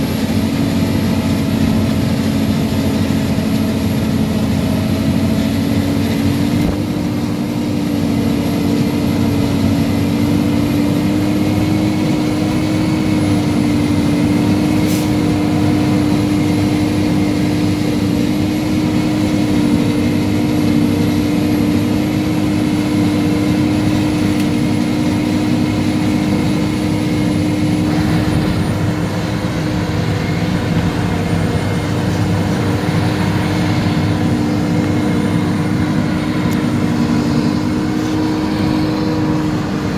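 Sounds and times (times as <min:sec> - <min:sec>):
forage harvester droning: 0:00.0 - 0:39.9
tractor running: 0:00.0 - 0:39.9.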